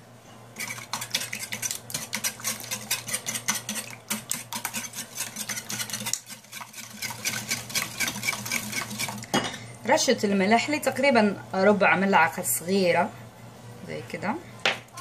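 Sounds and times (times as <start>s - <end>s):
whisk clicking against glass bowl: 0.6s - 9.2s.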